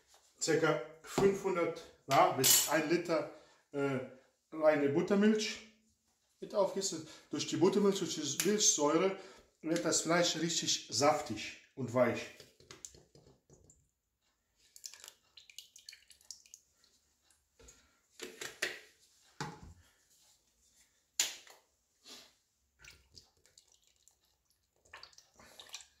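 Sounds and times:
liquid glugging and splashing: 14.7 - 16.9, 22.8 - 26.0.

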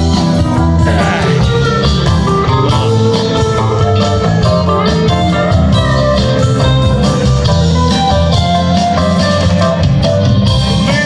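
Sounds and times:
electric guitar: 0.0 - 11.0
live rock band: 0.0 - 11.0
drum beat: 0.8 - 3.8.

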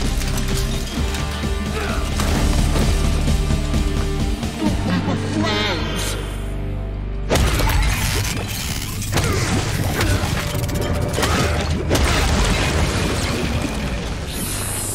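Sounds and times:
mechanical crunching and clattering: 0.0 - 3.2, 7.4 - 14.8
heavy smashing impacts: 9.4 - 14.3.

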